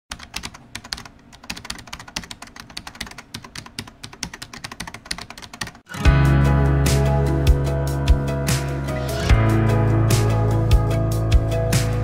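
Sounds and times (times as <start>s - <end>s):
rapid keyboard typing: 0.1s - 5.9s.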